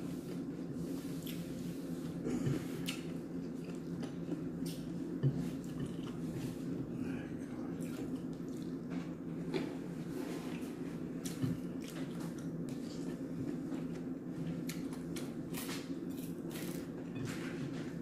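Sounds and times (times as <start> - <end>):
person chewing and lip-smacking: 2.8 - 4.9.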